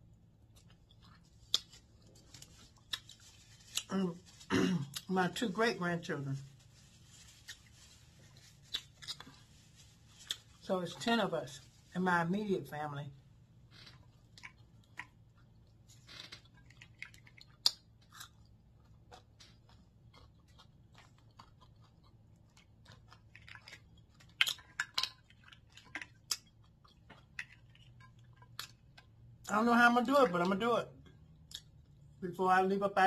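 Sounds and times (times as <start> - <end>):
close-up chewing: 0.2 - 5.1, 6.7 - 10.7, 13.9 - 29.4
crab shells cracking: 21.2 - 29.0.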